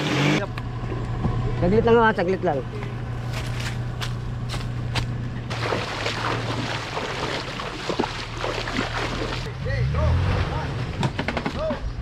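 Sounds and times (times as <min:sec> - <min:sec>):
vehicle engine idling: 0:00.4 - 0:05.6.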